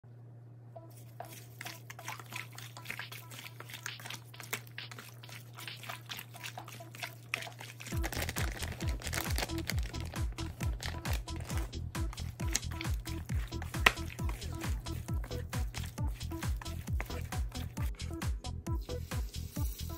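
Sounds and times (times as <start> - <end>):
wet clicks of mixing chicken: 0.9 - 18.1
music with thumping beat: 7.9 - 19.9.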